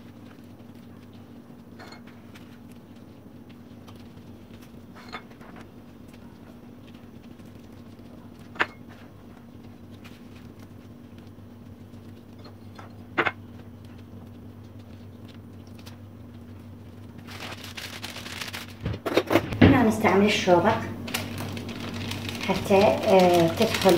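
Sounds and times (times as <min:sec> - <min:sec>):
steady low hum: 0:00.0 - 0:23.9
paper rustling: 0:17.1 - 0:19.6, 0:21.1 - 0:23.9.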